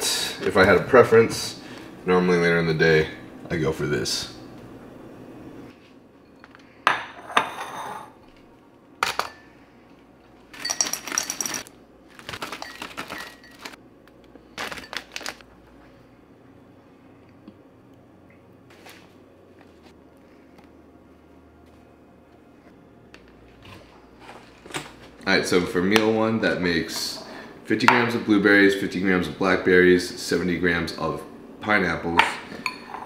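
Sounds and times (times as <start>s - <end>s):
kitchenware clinking: 6.3s - 8.2s, 10.5s - 11.7s, 12.4s - 13.8s, 32.2s - 33.0s
kitchenware rattling: 10.5s - 11.7s, 12.3s - 13.8s.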